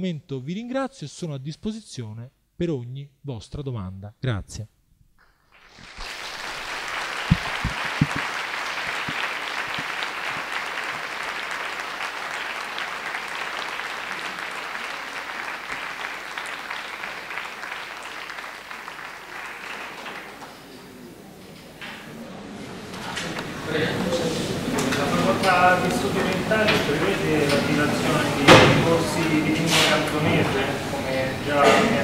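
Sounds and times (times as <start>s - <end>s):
audience applauding: 5.5s - 22.0s
low thumps: 7.2s - 10.4s.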